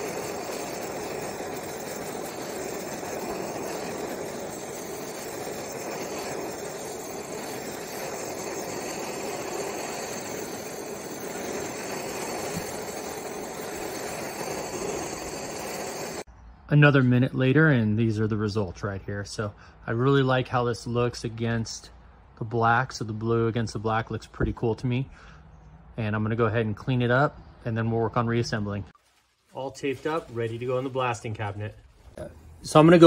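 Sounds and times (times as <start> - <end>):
gas torch hissing: 0.0 - 16.3.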